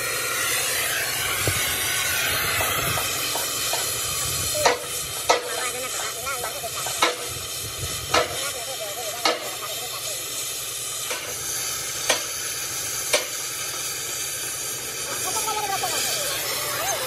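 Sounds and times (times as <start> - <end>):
loud steady hiss: 0.0 - 17.0.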